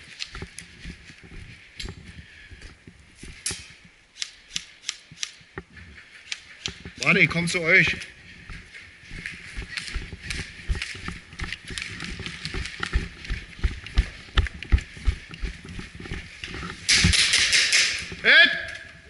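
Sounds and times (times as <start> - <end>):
clothing and gear rustling: 0.0 - 4.0, 5.4 - 17.2
footsteps on gritty concrete: 7.9 - 16.9.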